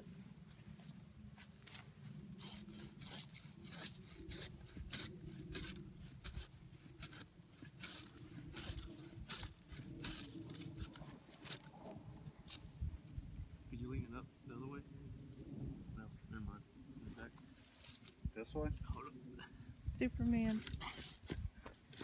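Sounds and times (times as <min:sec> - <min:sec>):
hand saw rasping through wood: 0:02.4 - 0:11.7, 0:20.5 - 0:22.0.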